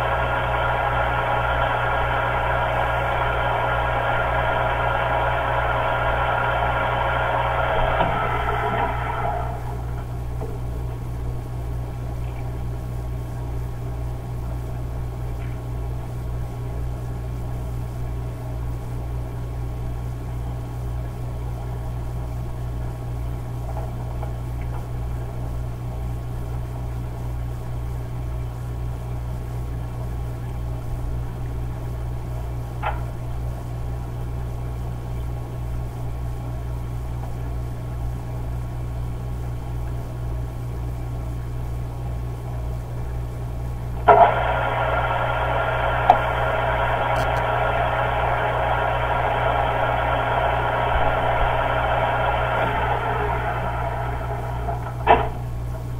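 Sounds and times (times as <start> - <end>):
machinery humming: 0.0 - 55.9.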